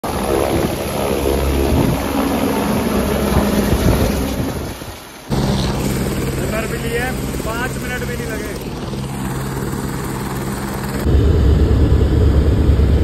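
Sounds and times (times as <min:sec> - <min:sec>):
loud vehicle engine rumbling: 0:05.3 - 0:12.6.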